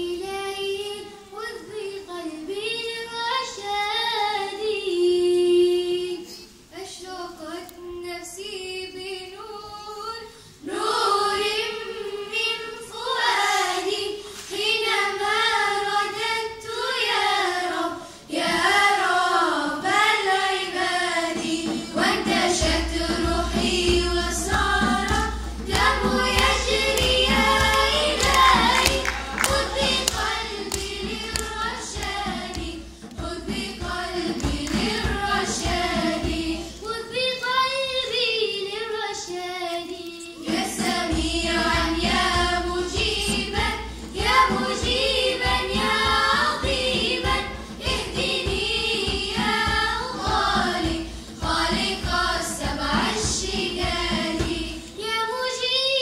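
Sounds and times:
girls' choir singing: 8.6 - 56.0
hand drum: 20.5 - 36.9, 40.4 - 55.0.

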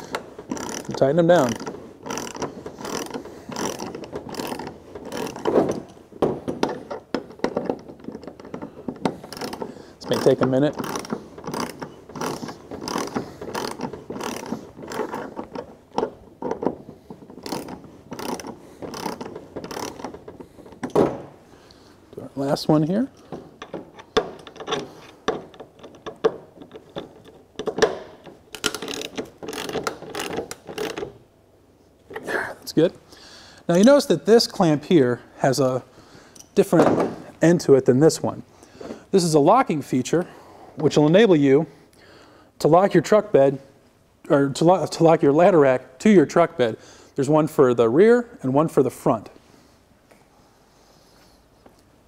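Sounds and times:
ratchet pawl clicking: 0.1 - 5.4, 9.3 - 15.3, 17.4 - 20.2, 28.6 - 31.1.

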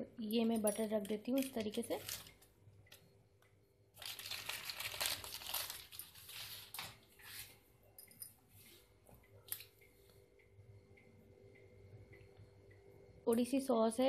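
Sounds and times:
plastic sachet crinkling: 1.3 - 2.5, 4.0 - 7.1.

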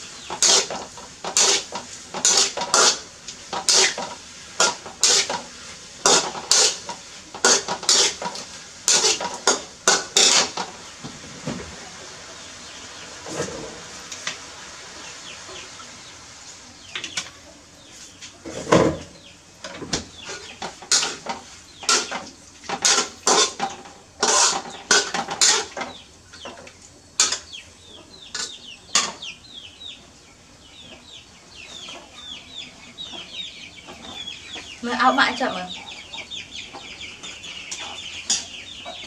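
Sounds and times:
dishes and utensils clinking: 0.3 - 10.7, 18.5 - 26.0, 27.2 - 27.5.

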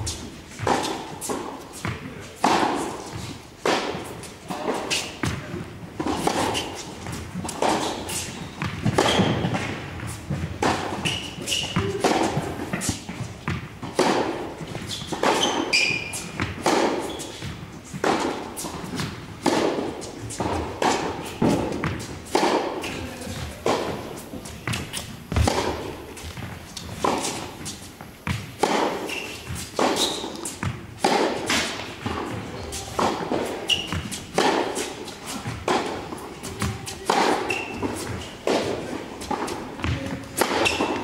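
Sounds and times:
tennis ball struck by racket: 0.6 - 5.4, 6.0 - 41.0
ball bouncing on hard court: 24.6 - 27.4, 28.2 - 34.6
short high squeaks: 29.0 - 30.4, 33.7 - 34.0.

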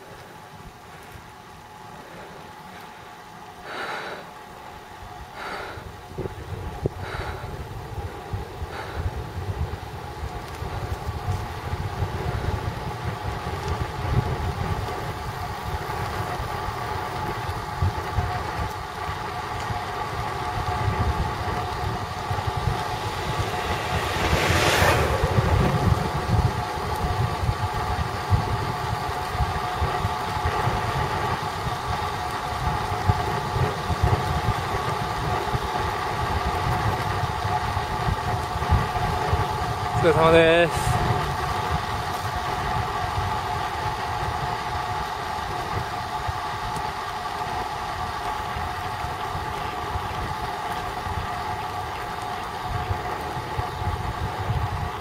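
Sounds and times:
road rumble: 0.0 - 55.0
wind buffeting microphone: 4.9 - 55.0
whoosh: 22.6 - 26.6.

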